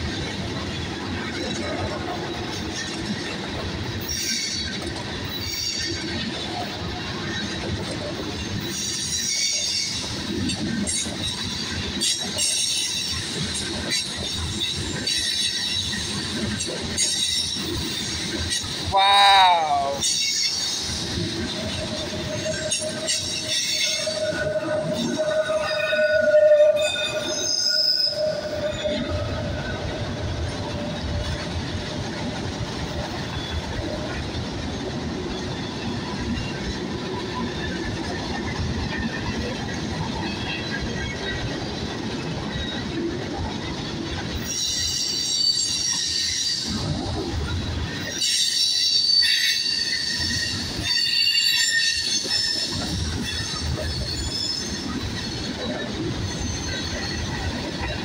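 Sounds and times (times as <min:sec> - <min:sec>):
freight train wheels rumbling: 0:00.0 - 0:58.0
high-pitched wheel squeal: 0:22.2 - 0:29.4, 0:48.1 - 0:57.4.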